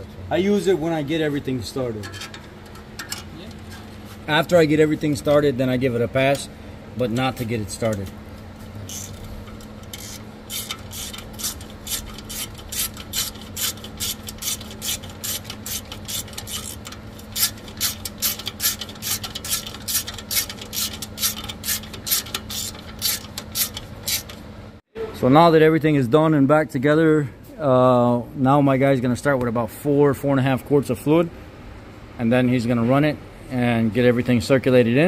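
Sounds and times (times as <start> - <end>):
steady low hum: 0.0 - 35.0
ratchet clicking: 8.8 - 24.4.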